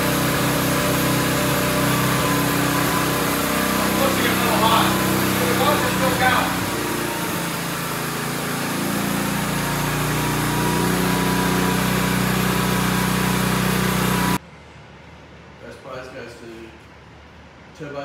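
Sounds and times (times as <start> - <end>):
portable generator engine running: 0.0 - 14.4.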